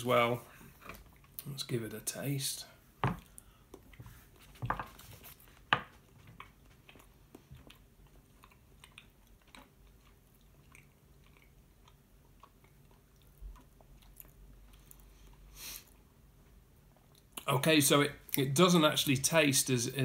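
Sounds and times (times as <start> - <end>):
person chewing soft cheese: 0.6 - 1.5, 3.2 - 4.6, 5.2 - 17.5.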